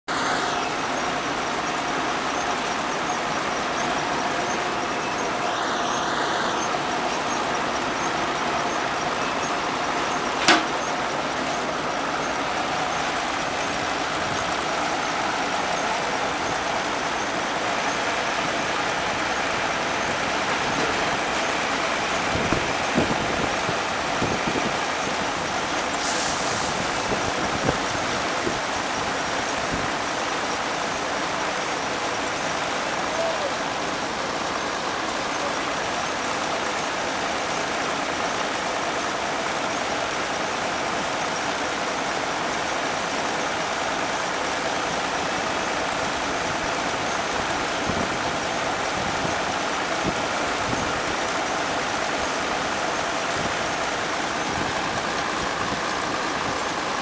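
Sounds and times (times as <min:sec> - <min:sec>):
combine harvester drone: 0:00.1 - 0:57.0
sharp click: 0:10.4 - 0:10.9.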